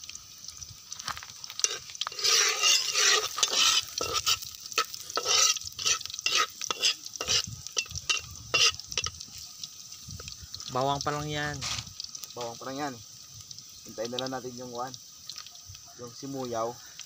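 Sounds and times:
garlic sizzling in oil: 0.0s - 17.0s
spatula scraping a pan: 1.5s - 9.2s.

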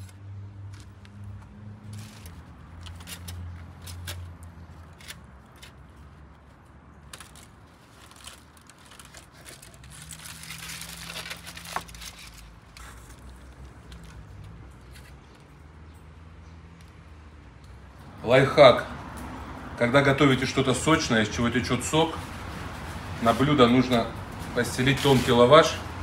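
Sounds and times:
foil crinkling: 2.0s - 14.2s.

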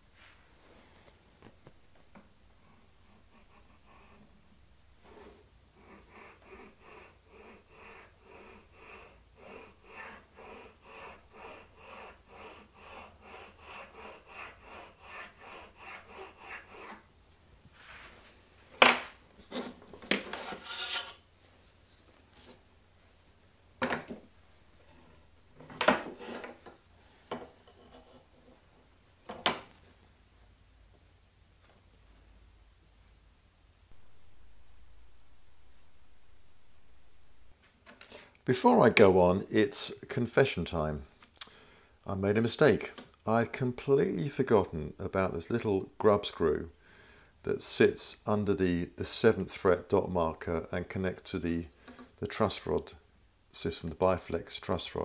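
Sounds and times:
file rasping on wood: 2.8s - 4.3s, 5.1s - 17.1s, 20.2s - 21.2s.

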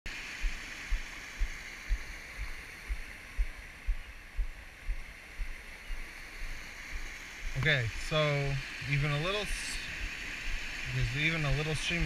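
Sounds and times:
deep rhythmic thump: 0.4s - 8.1s
water rushing from culvert: 6.4s - 12.0s.

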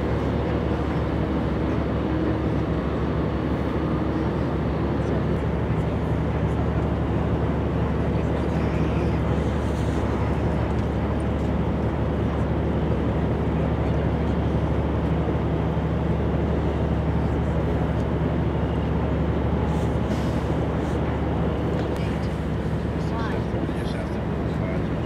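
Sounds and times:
heavy machinery engine drone: 0.0s - 25.0s.

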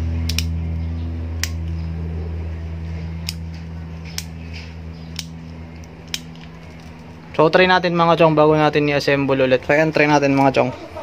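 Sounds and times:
low mechanical hum: 0.0s - 11.0s
sharp plastic clicks: 0.2s - 0.6s.

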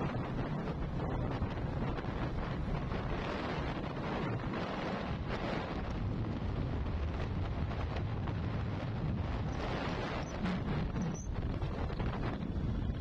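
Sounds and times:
low road rumble: 0.0s - 13.0s
wind rushing over microphone: 0.0s - 13.0s.

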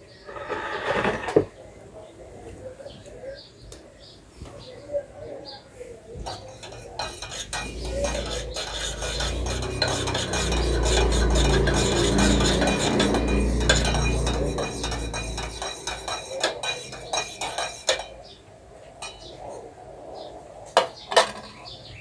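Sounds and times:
metal spoon scraping a metal pot: 0.1s - 1.5s, 6.2s - 18.4s, 19.0s - 19.5s
low hum: 7.5s - 16.2s.

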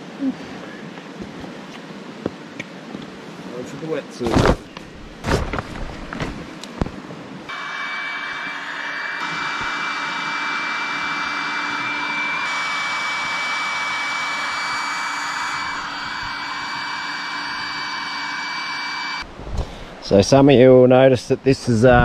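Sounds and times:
electric air pump whining: 7.5s - 19.3s.

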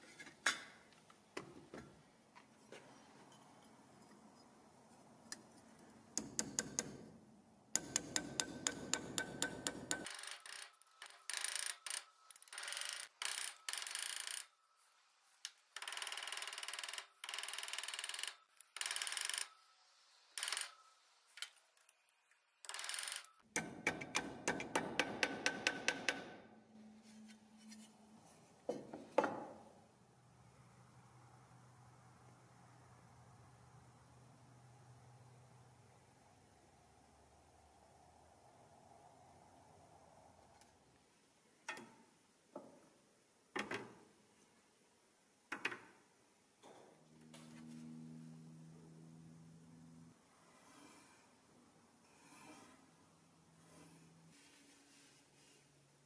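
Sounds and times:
hammer striking metal: 7.8s - 10.1s, 23.6s - 26.4s.

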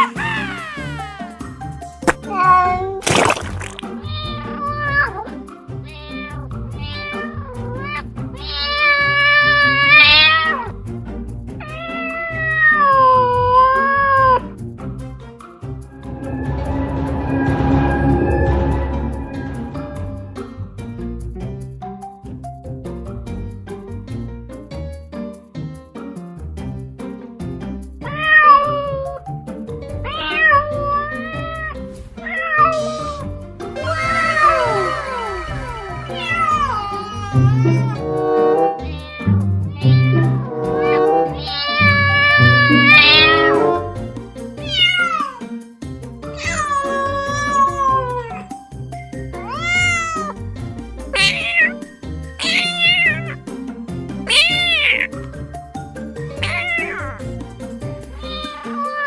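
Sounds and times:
cat meowing: 0.0s - 1.3s, 2.1s - 3.0s, 3.6s - 10.7s, 11.6s - 14.4s, 28.0s - 29.2s, 30.0s - 44.0s, 44.6s - 45.5s, 46.4s - 48.5s, 49.4s - 50.4s, 51.1s - 53.4s, 54.3s - 55.2s, 56.4s - 57.3s, 58.1s - 59.0s
background music: 0.0s - 59.0s.

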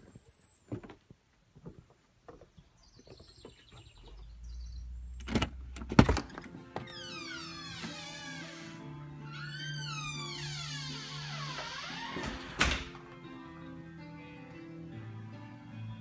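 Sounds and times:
footsteps on wooden deck: 0.0s - 4.1s
music: 6.0s - 16.0s
door latch and lock clunks: 11.6s - 13.1s.

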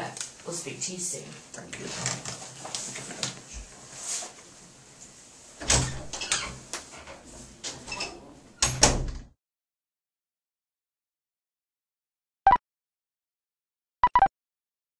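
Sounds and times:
door knocks and latch clicks: 8.6s - 9.3s.

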